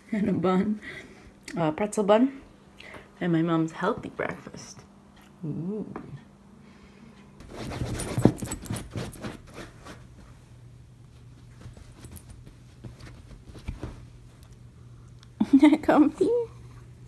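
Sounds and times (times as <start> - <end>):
low steady hum: 0.0 - 17.0
dog rustling on sofa: 7.4 - 10.5, 11.1 - 14.5.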